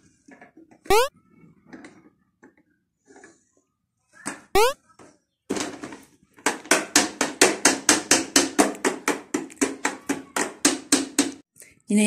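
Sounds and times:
plastic hammer knocking on toy: 6.4 - 11.4.

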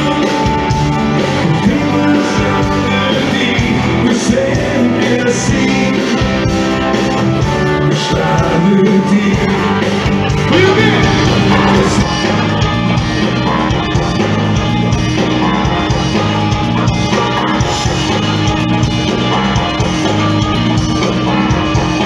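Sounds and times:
electric guitar: 0.0 - 22.0
live rock band playing: 0.0 - 22.0
person singing: 1.4 - 6.4, 7.9 - 12.5.

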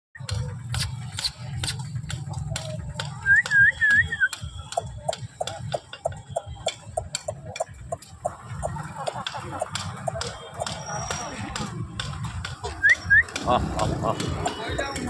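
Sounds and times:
scattered clicks: 0.2 - 15.0
chickens clucking: 0.6 - 15.0
wavering whistle-like notes: 3.2 - 7.7.

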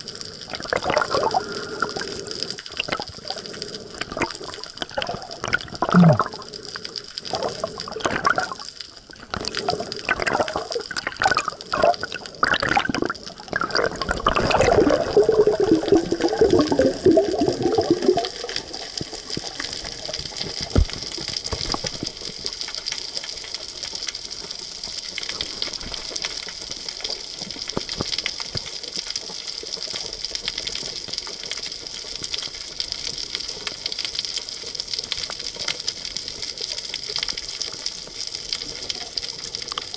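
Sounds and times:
bubbling: 0.0 - 23.4
underwater water sloshing and gurgling: 0.0 - 39.9.

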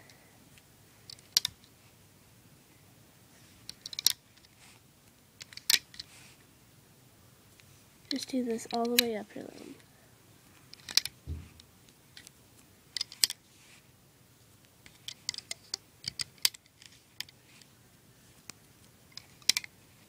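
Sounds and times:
dull thump: 11.2 - 11.6.

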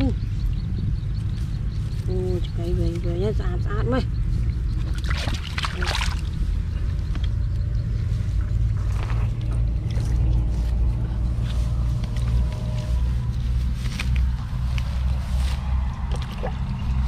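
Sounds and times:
steady low rumble: 0.0 - 17.0
muddy water sloshing and splashing: 4.6 - 7.4, 8.6 - 11.7, 13.8 - 17.0.

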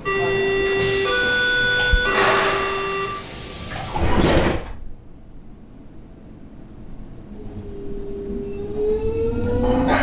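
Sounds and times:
electronic three-note chime: 0.1 - 3.2.

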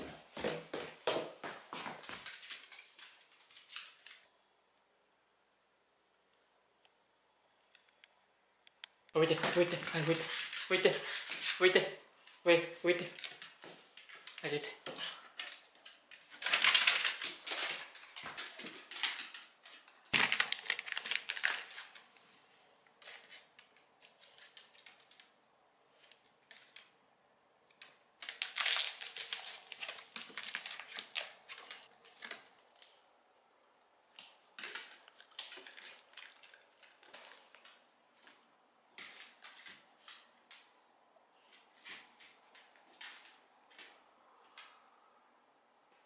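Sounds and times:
plastic snack bag crinkling: 15.4 - 22.2, 27.7 - 33.0, 34.1 - 38.4.

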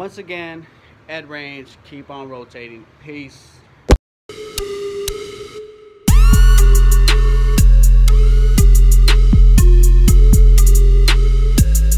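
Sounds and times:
heavy sustained bass: 6.1 - 11.9.

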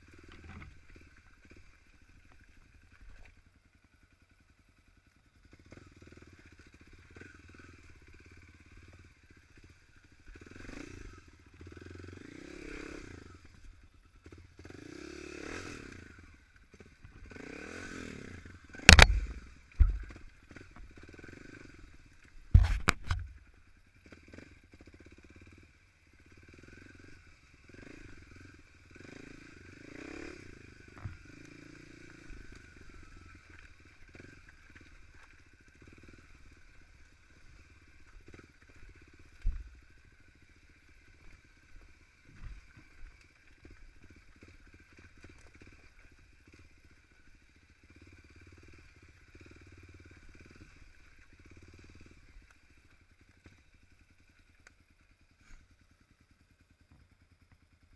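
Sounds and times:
dirt bike engine revving: 5.4 - 23.4, 24.0 - 53.6
bike knocking over rough ground: 18.8 - 21.0, 22.5 - 23.5.

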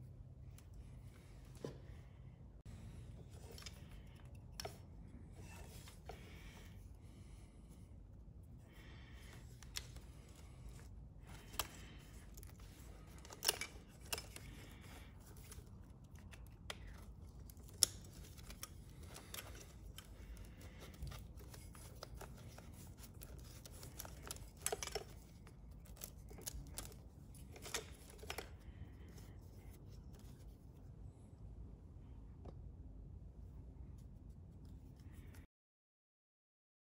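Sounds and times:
light rustling of wires: 0.0 - 31.2.

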